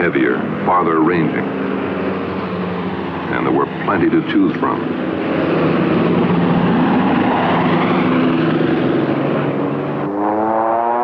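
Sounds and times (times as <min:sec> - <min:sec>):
propeller plane engine at full power: 0:00.0 - 0:11.0
low steady horn-like tone: 0:10.0 - 0:11.0.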